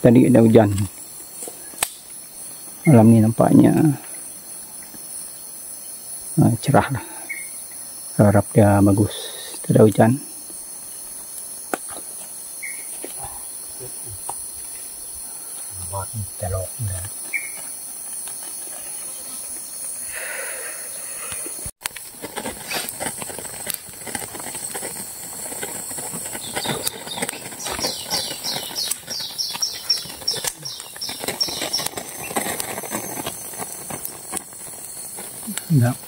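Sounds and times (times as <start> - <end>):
insects buzzing: 0.0 - 36.0
crackles and clicks: 0.1 - 4.2, 21.2 - 36.0.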